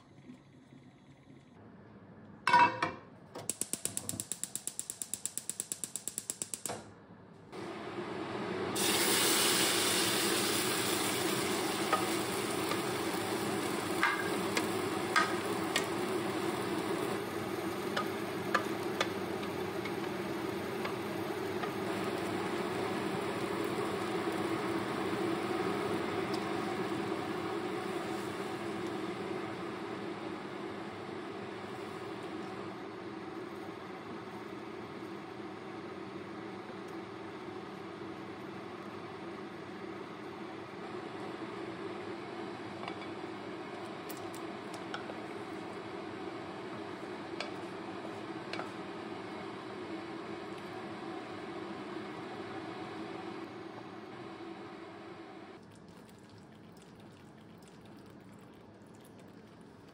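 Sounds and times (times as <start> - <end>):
gas igniter clicking: 3.4 - 6.9
sauce sizzling in frying pan: 8.8 - 35.1.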